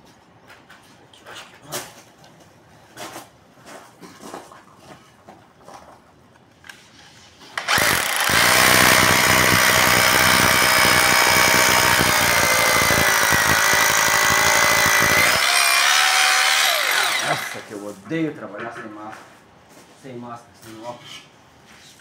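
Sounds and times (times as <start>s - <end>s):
electric drill motor whine: 7.6s - 17.6s
drill bit grinding into brick: 7.6s - 17.7s.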